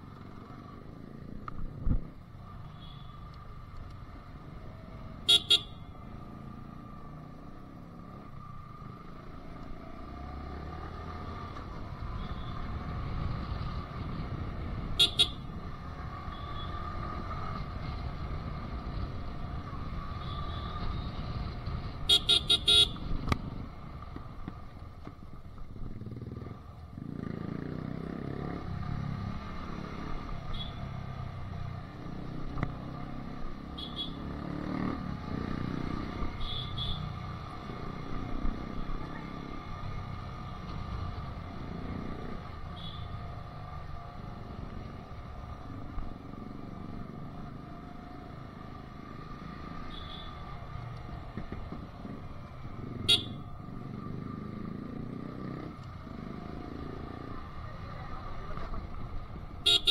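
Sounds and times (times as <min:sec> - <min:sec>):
motorcycle engine running: 0:40.6 - 0:59.9
horn beeping: 0:53.0 - 0:53.4.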